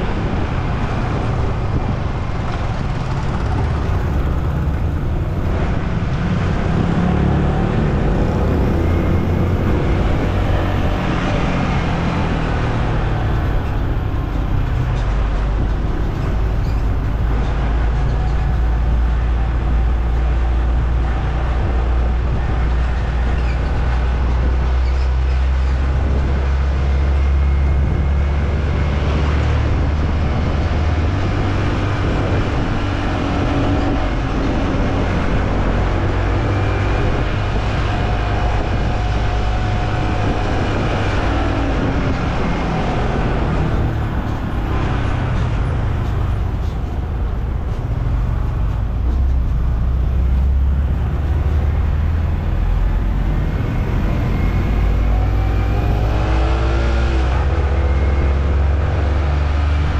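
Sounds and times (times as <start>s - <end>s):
heavy low rumble: 0.0s - 59.9s
road and traffic noise: 0.0s - 59.9s.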